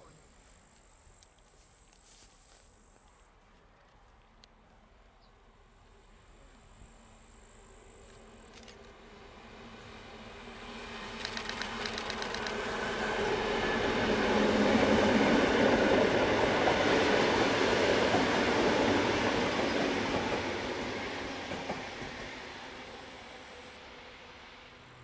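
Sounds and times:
locomotive engine hum: 5.7s - 25.0s
train wheels rumbling on rails: 8.8s - 25.0s.

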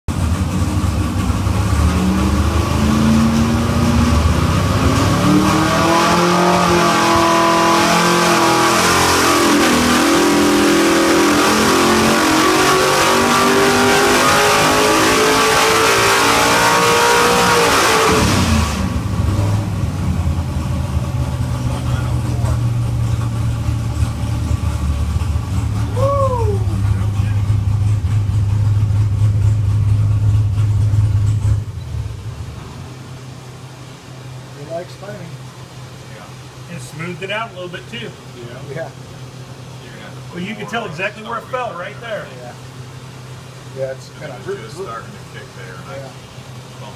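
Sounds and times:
engine revving then idling: 0.1s - 36.0s.

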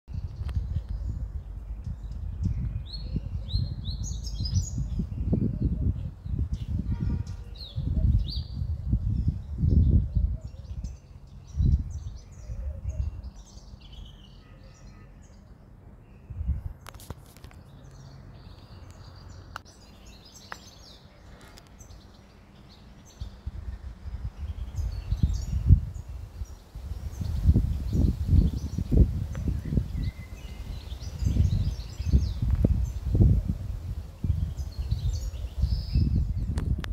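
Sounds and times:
low rumble on microphone: 0.1s - 14.1s, 16.2s - 16.9s, 22.6s - 36.9s
small birds chirping: 0.1s - 36.9s
low outdoor background hum: 10.3s - 27.9s.

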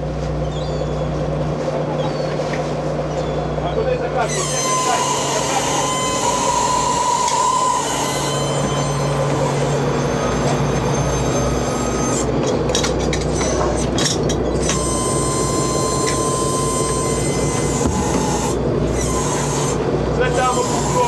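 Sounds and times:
diesel engine drone: 0.0s - 21.0s
steady high whine: 2.6s - 21.0s.

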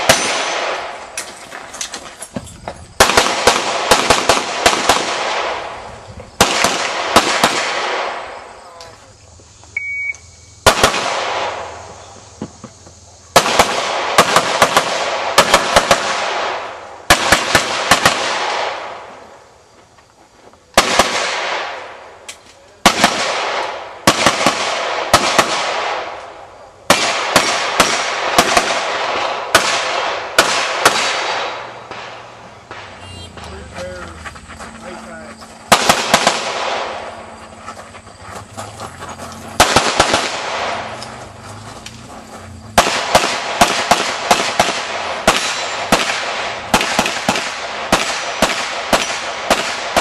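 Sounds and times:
gunshots with echo: 0.0s - 1.0s, 3.0s - 8.5s, 10.6s - 11.8s, 13.4s - 19.0s, 22.8s - 26.2s, 26.9s - 33.2s, 35.7s - 37.2s, 39.6s - 41.0s, 42.7s - 50.0s
shot timer beep: 9.8s - 10.4s.

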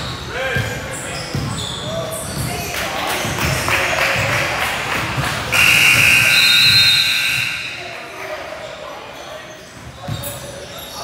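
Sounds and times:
crowd and court noise: 0.0s - 11.0s
scoreboard buzzer: 5.6s - 7.8s.

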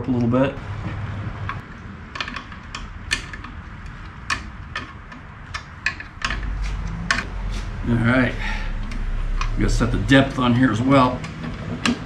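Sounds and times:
wrench metallic clicks: 1.4s - 7.3s.

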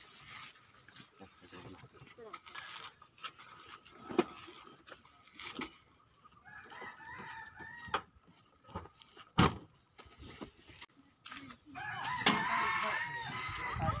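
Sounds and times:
rooster crowing: 6.4s - 8.1s, 11.8s - 14.0s.

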